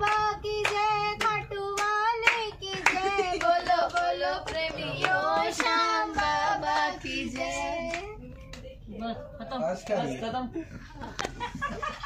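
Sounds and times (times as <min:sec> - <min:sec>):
hand claps: 0:00.0 - 0:08.6.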